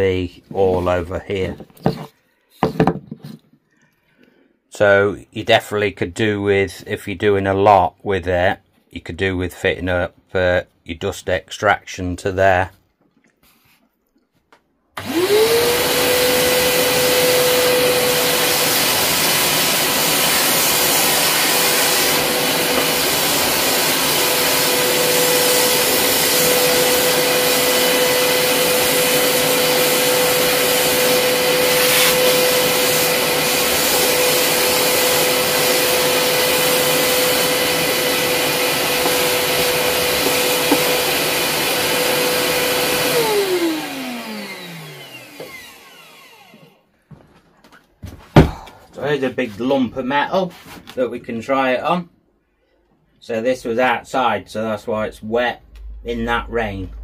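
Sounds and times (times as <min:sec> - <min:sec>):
belt sander whining: 0:15.0 - 0:46.8.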